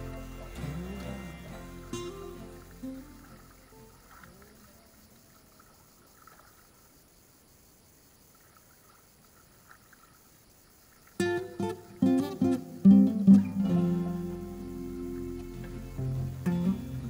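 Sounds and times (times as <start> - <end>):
acoustic guitar strumming: 0.0 - 4.5, 11.2 - 17.0
dog splashing in shallow water: 0.0 - 6.9
low hiss: 0.0 - 17.0.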